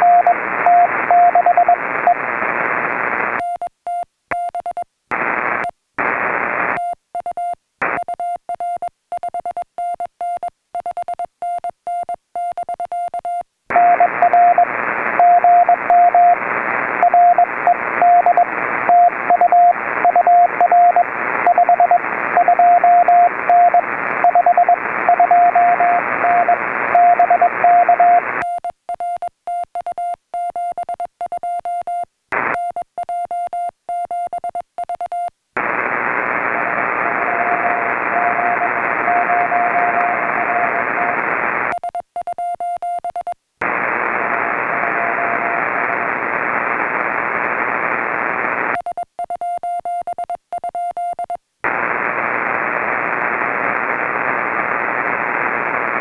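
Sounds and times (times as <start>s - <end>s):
morse code beeps: 0.0s - 1.8s, 6.8s - 16.4s, 17.0s - 35.3s, 41.7s - 43.4s, 48.8s - 51.4s
receiver hiss: 0.0s - 3.6s, 5.1s - 9.3s, 13.7s - 28.7s, 32.3s - 32.8s, 34.3s - 42.3s, 43.6s - 48.9s, 51.6s - 56.0s
faint weak morse signal: 0.0s - 56.0s.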